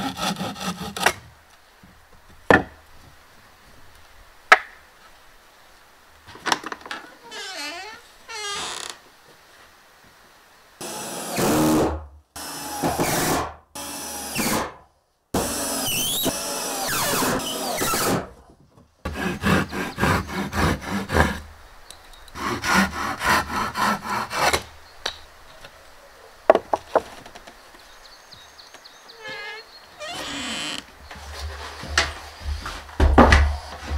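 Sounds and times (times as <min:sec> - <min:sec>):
saw cutting in steady strokes: 0:00.0 - 0:01.2, 0:10.8 - 0:14.7, 0:15.4 - 0:18.3, 0:19.1 - 0:21.5, 0:22.4 - 0:24.7
woodworking tool noise: 0:29.2 - 0:33.9.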